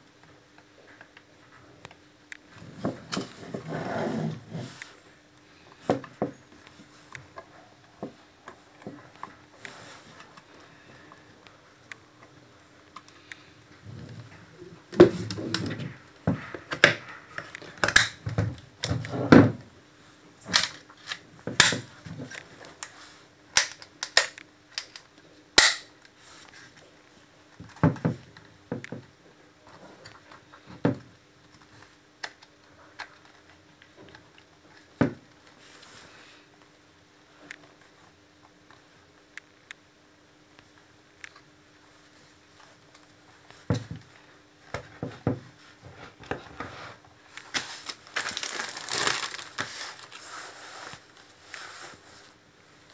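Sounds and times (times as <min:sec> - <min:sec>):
plastic housing clacks and clicks: 0:23.6 - 0:25.8.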